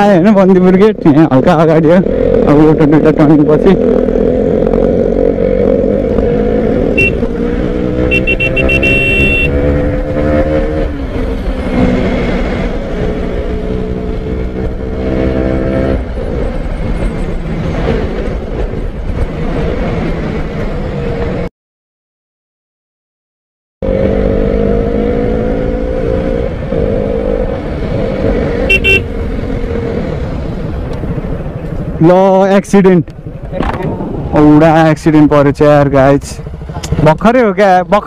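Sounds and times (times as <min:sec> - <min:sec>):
vehicle engine accelerating: 0:01.0 - 0:21.5, 0:23.8 - 0:32.0
vehicle horn honking: 0:06.9 - 0:07.2, 0:08.0 - 0:09.6, 0:28.7 - 0:29.1.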